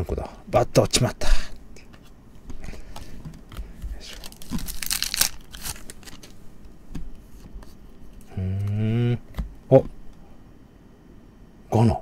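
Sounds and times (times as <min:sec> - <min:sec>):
cards rustling and clicking: 0:01.9 - 0:08.3
wrapper tearing and crinkling: 0:04.0 - 0:06.4
person humming: 0:08.3 - 0:09.9.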